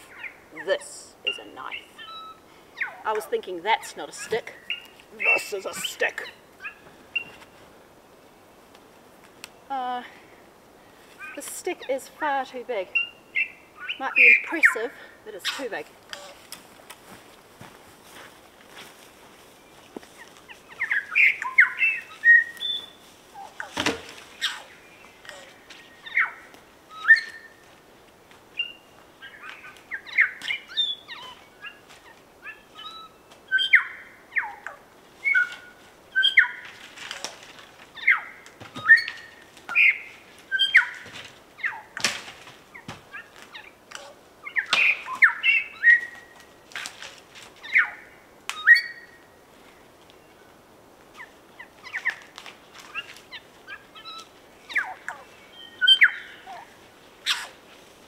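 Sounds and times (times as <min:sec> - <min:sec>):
bird singing whistled notes: 0:01.2 - 0:03.1, 0:20.7 - 0:23.0, 0:25.9 - 0:27.6, 0:32.5 - 0:34.6, 0:35.2 - 0:36.6, 0:38.0 - 0:41.0, 0:48.6 - 0:49.2, 0:54.0 - 0:56.4
sharp bird clicks: 0:43.5 - 0:46.1.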